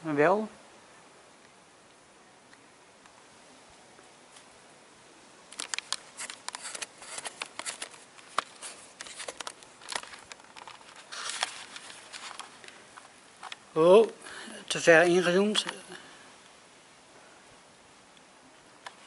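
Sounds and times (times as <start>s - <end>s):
short rustle: 5.6s - 13.6s.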